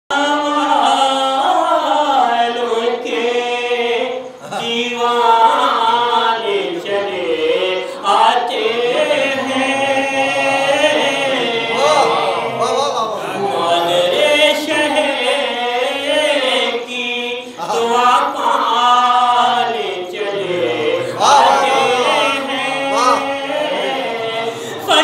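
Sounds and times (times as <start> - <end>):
man chanting into a microphone: 0.1 - 20.2.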